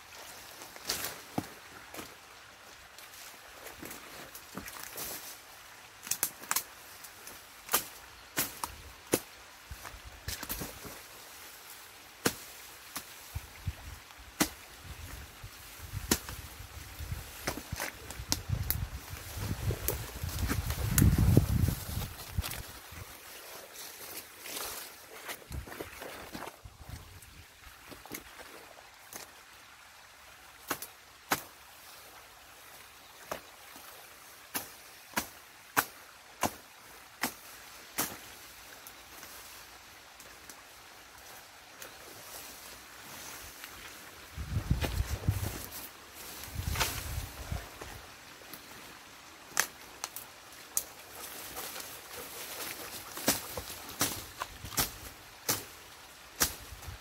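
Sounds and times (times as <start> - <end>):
sticks cracking and snapping: 6.0 - 6.8, 7.6 - 9.3, 15.9 - 18.9, 19.8 - 22.7, 49.5 - 55.8, 56.4 - 56.8.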